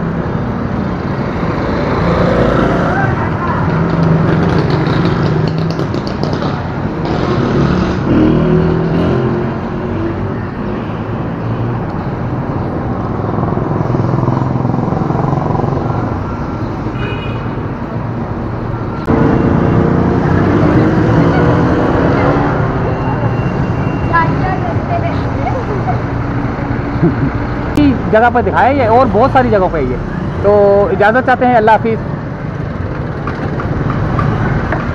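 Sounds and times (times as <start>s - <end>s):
motorcycle engine revving: 1.7s - 10.2s, 19.1s - 22.9s.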